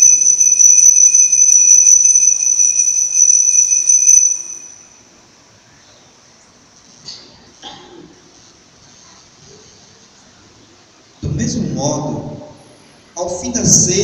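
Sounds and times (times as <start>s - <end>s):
altar bells ringing: 0.0s - 4.9s.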